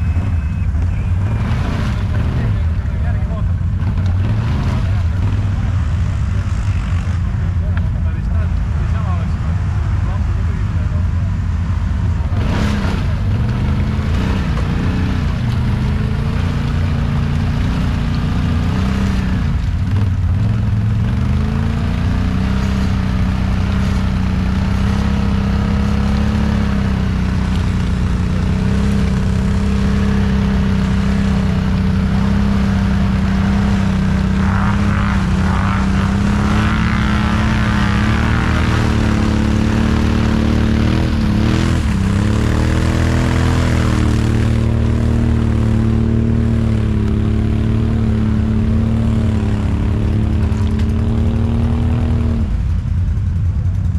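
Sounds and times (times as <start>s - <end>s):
atv engine running hard: 0.0s - 53.9s
wheels churning mud: 12.4s - 52.3s.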